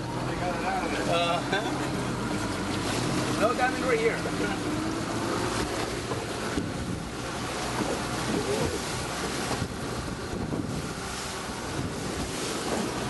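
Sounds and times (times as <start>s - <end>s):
boat motor running: 0.0s - 13.0s
water splashing on hull: 0.0s - 13.0s
wind on microphone: 5.9s - 7.3s, 8.2s - 13.0s.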